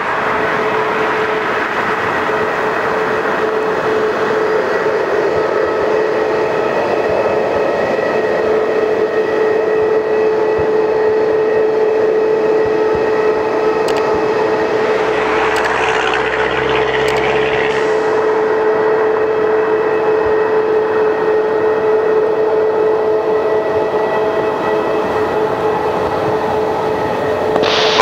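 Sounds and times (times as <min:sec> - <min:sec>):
jet engines whining: 0:00.0 - 0:28.0
deep rumble: 0:12.7 - 0:20.3.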